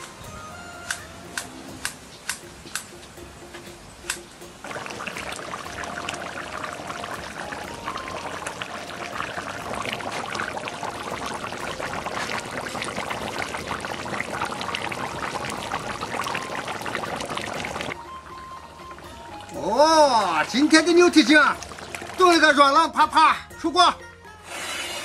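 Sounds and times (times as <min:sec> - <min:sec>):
thick sauce bubbling and popping: 0:04.6 - 0:18.0, 0:20.4 - 0:22.4.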